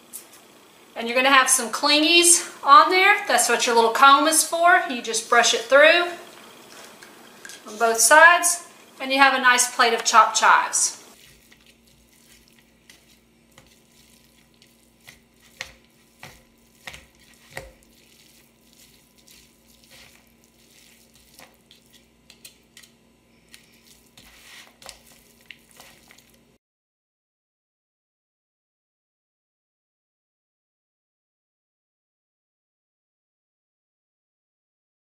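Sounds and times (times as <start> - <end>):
scraping foil pan: 11.1 - 22.8, 23.4 - 26.4
plastic claws shredding meat: 11.2 - 26.5.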